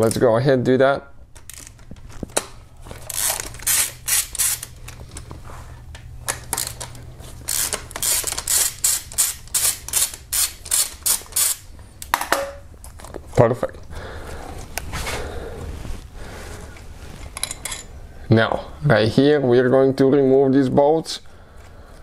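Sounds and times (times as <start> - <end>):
hand ratchet clicking: 3.0 - 4.9, 6.3 - 11.7.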